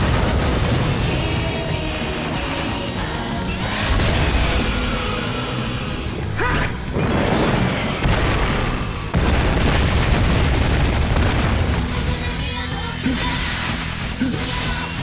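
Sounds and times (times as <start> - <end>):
heavy explosion booms: 0.0 - 2.1, 3.6 - 5.7, 6.9 - 12.5
big rumbling blast: 0.0 - 12.6.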